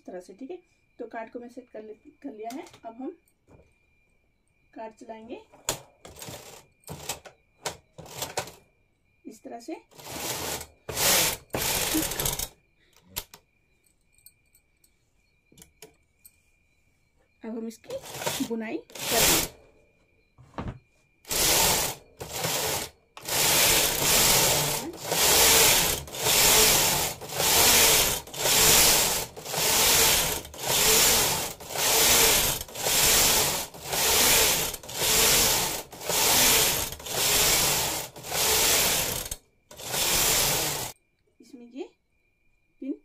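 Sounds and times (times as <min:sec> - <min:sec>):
knitting machine carriage rushing: 0:06.1 - 0:08.6, 0:10.0 - 0:12.5, 0:18.0 - 0:19.6, 0:21.3 - 0:41.0.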